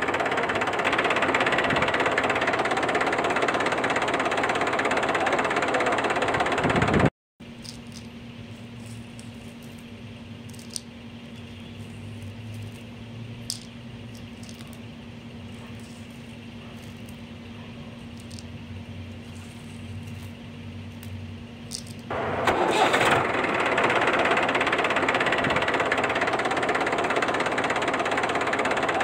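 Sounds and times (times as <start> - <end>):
low mechanical hum: 0.0 - 29.0
stones dropping into plastic toy: 7.6 - 8.1, 10.4 - 10.9, 12.5 - 14.8, 18.0 - 18.5, 21.0 - 22.1.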